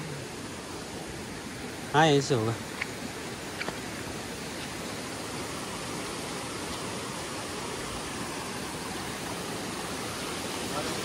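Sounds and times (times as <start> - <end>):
water rushing in mountain stream: 0.0 - 11.0.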